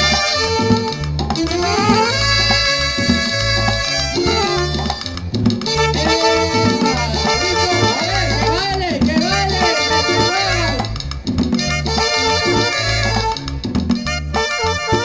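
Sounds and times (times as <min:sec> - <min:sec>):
wavering bending melody: 0:00.0 - 0:11.0
bass and drum beat: 0:00.0 - 0:15.0
saxophone: 0:00.0 - 0:15.0.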